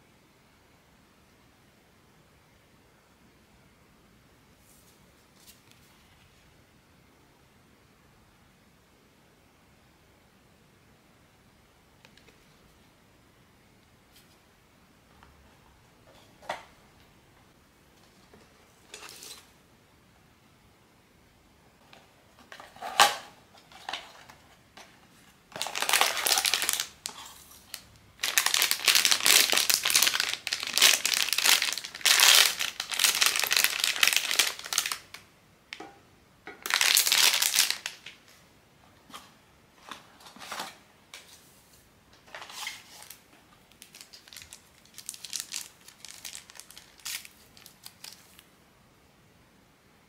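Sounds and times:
plastic packaging crinkling: 0:25.5 - 0:35.2, 0:36.6 - 0:38.3, 0:42.3 - 0:48.5.

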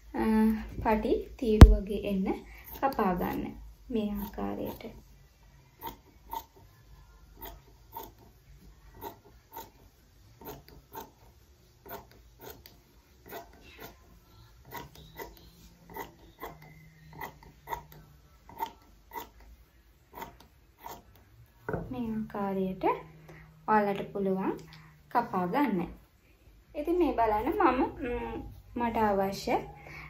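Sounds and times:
scissors cutting cloth: 0:07.4 - 0:08.3, 0:08.9 - 0:09.8, 0:10.4 - 0:11.2, 0:11.8 - 0:19.5, 0:20.1 - 0:21.3.

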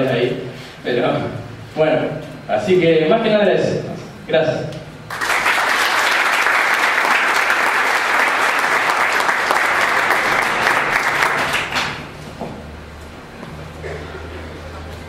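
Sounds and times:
audience applauding: 0:05.1 - 0:12.2.

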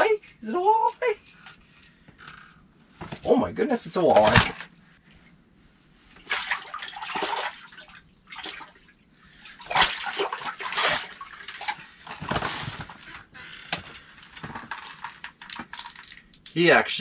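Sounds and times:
water splashing in ice hole: 0:06.2 - 0:08.8, 0:09.5 - 0:11.9.

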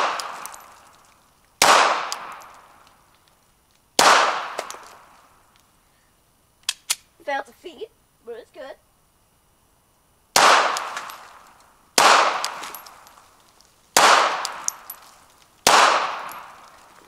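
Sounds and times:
pistol shots with echo: 0:00.0 - 0:00.7, 0:01.6 - 0:02.7, 0:04.0 - 0:04.8, 0:10.4 - 0:11.3, 0:12.0 - 0:13.1, 0:14.0 - 0:15.0, 0:15.6 - 0:16.7.

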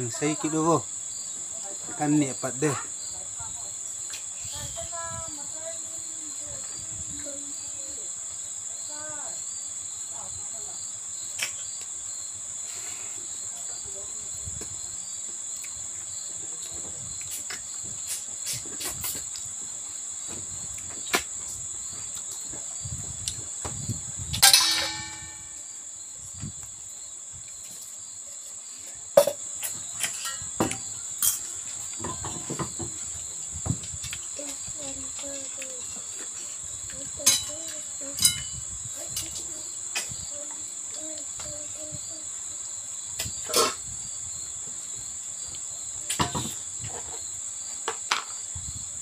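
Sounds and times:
cricket chorus chirring: 0:00.0 - 0:49.0
ringing clink on metal bowl: 0:24.4 - 0:25.7, 0:37.2 - 0:37.6, 0:38.2 - 0:38.6.

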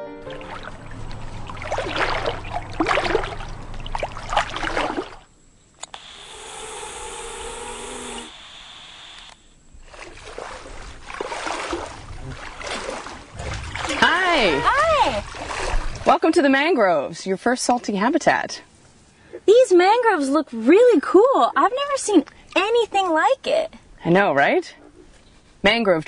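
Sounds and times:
wading through shallow water: 0:00.2 - 0:05.3, 0:09.7 - 0:16.7
two-way radio hiss: 0:05.8 - 0:09.6.

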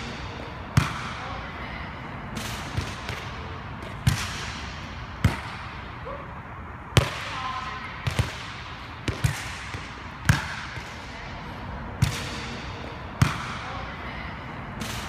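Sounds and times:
ball bouncing on court floor: 0:00.0 - 0:01.2, 0:02.4 - 0:05.8, 0:06.9 - 0:11.2, 0:12.0 - 0:13.7.

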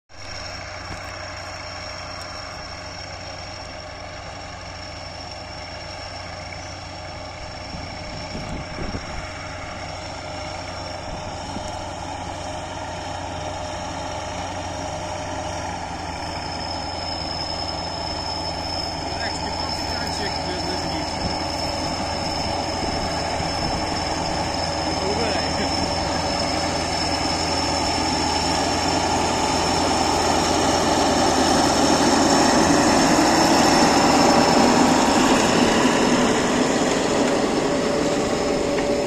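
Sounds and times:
tractor diesel engine under load: 0:00.1 - 0:39.0
thin high whine: 0:15.8 - 0:39.0.

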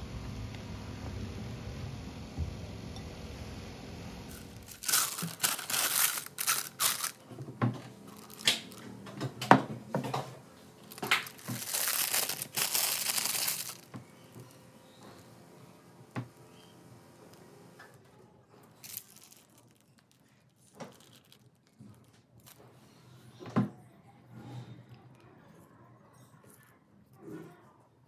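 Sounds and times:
plastic piping bag crinkling: 0:04.3 - 0:07.4, 0:08.0 - 0:09.0, 0:10.8 - 0:15.2, 0:18.7 - 0:22.6.

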